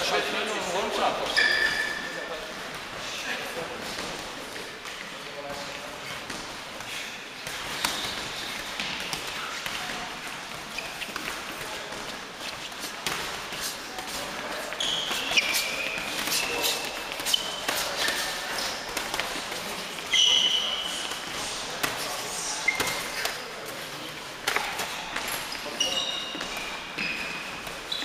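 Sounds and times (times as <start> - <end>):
shoes squeaking on gym floor: 1.2 - 2.3, 7.5 - 21.3, 21.9 - 23.9, 24.6 - 28.0.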